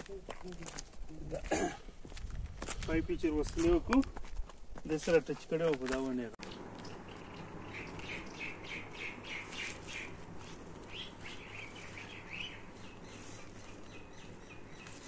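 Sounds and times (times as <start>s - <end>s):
bird chirping: 6.4s - 15.0s
low steady hum: 6.4s - 15.0s.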